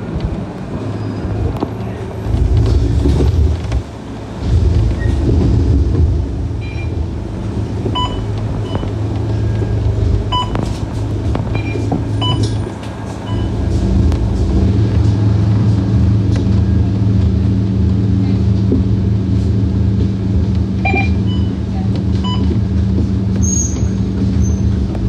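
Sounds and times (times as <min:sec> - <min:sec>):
bus diesel engine idling: 0:00.0 - 0:25.0
short electronic beeps: 0:20.8 - 0:21.6.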